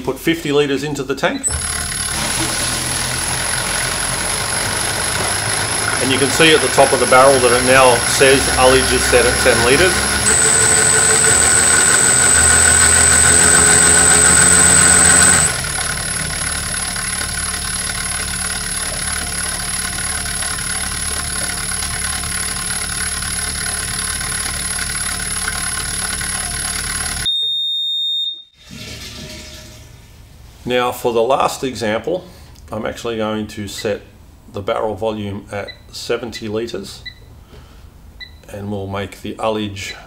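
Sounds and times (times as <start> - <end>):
electric pump motor whine: 1.5 - 27.3
steady electronic beep: 6.5 - 15.6.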